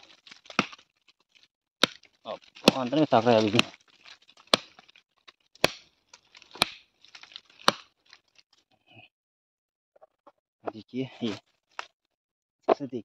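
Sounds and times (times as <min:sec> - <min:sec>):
machete chopping tree stump: 0:00.0 - 0:00.8, 0:01.8 - 0:03.8, 0:04.4 - 0:04.9, 0:05.6 - 0:08.0
wood splintering crackle: 0:00.0 - 0:08.6, 0:11.2 - 0:12.0.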